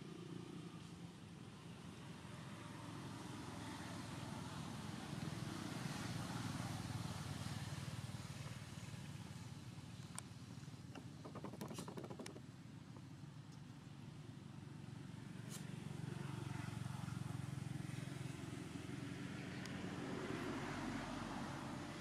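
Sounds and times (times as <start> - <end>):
sharp clicks: 10.9 - 12.4.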